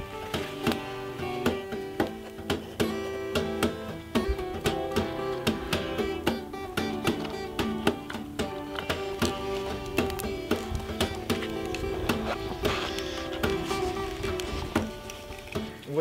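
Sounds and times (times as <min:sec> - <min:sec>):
plucked acoustic guitar: 0:00.0 - 0:16.0.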